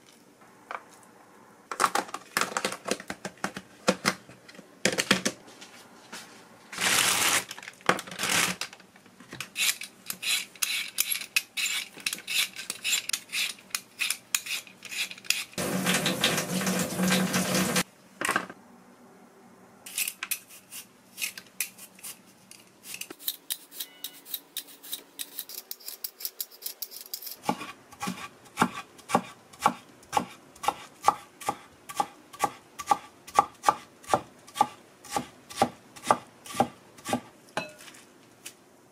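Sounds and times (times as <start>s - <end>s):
vegetable peeler scraping potatoes: 9.6s - 15.6s, 22.8s - 33.0s.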